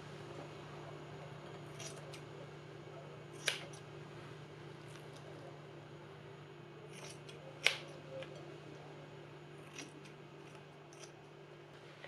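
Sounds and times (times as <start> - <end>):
low steady hum: 0.0 - 12.0
scissors snipping meat: 3.4 - 3.8, 6.9 - 8.4, 9.6 - 11.2.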